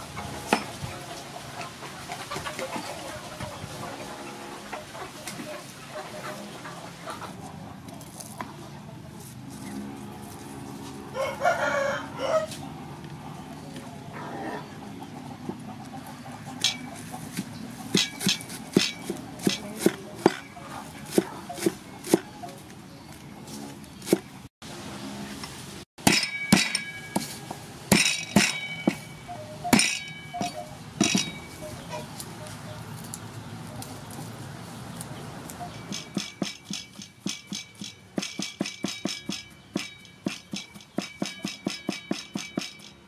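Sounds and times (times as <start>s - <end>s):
rooster crowing: 11.1s - 12.6s
cleaver striking chopping board: 17.4s - 20.5s, 26.0s - 29.0s.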